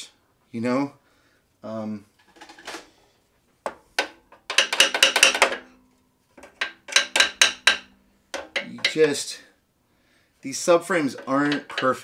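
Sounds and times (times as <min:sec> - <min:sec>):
sharp metallic clicks and taps: 0:03.7 - 0:05.7, 0:06.4 - 0:09.0, 0:11.2 - 0:12.0.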